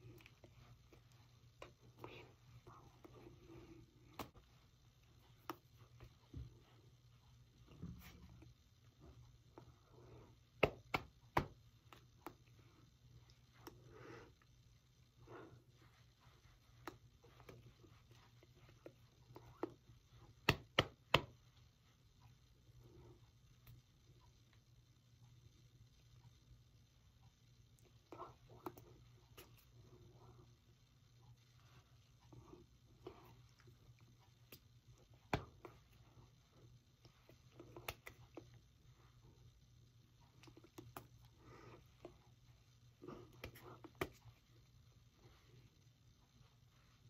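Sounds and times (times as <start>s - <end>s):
faint low hum: 0.0s - 47.0s
hands slapping: 10.6s - 12.4s, 16.8s - 21.4s, 37.6s - 38.5s, 43.2s - 44.3s
hands tapping and clicking: 10.6s - 12.4s, 20.4s - 21.3s.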